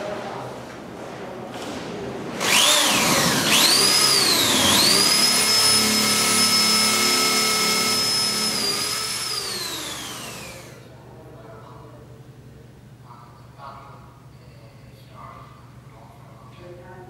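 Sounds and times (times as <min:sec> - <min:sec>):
electric drill whining: 0:02.4 - 0:10.8.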